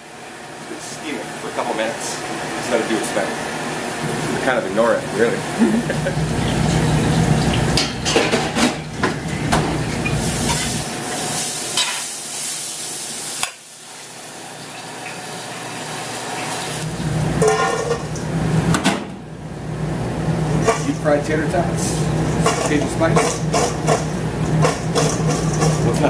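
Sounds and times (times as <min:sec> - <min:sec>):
burger patty sizzling on griddle: 0:05.1 - 0:18.8, 0:20.0 - 0:26.0.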